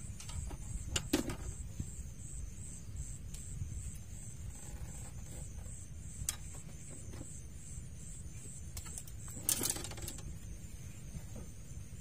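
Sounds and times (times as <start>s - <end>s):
steady low rumble: 0.0s - 4.6s
rustling clatter of rods: 8.8s - 10.5s.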